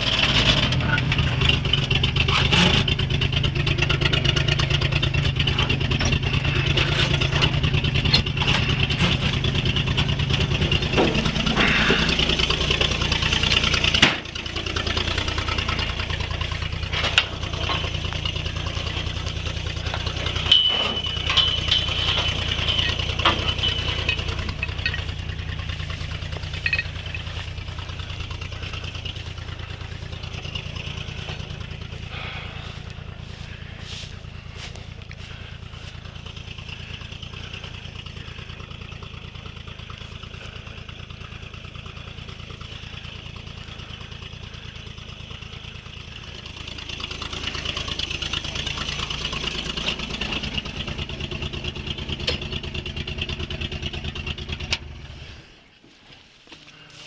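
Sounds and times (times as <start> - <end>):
truck engine idling: 0.0 - 57.0
light clanks and knocks: 0.4 - 32.1.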